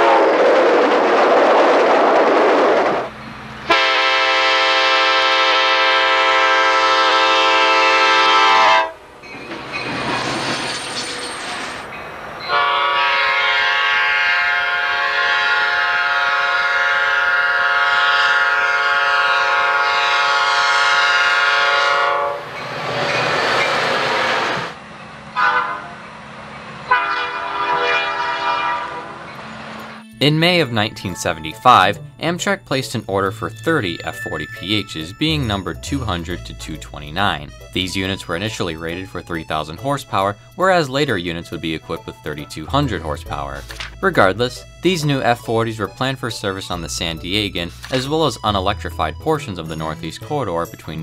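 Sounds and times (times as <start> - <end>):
passing train rumble: 0.0 - 51.0
locomotive air horn blasts: 3.7 - 9.1, 12.5 - 22.5, 25.4 - 26.0, 26.9 - 29.3.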